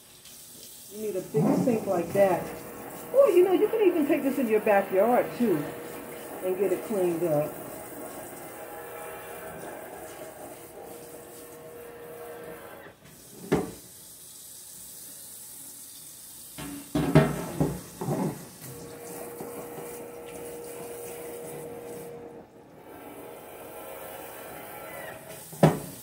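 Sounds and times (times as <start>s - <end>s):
tap water running into sink: 0.0s - 22.2s, 25.2s - 26.0s
clattering knocks in sink: 16.6s - 18.4s.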